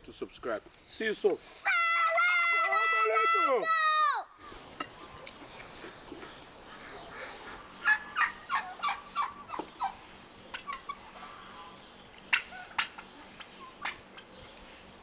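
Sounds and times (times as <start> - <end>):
turkey gobbling: 6.7 - 14.3.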